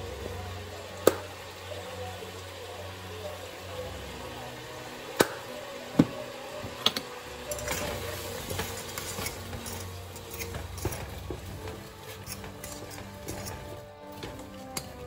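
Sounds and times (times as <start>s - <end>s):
kitchen clatter and clicks: 5.2s - 15.0s.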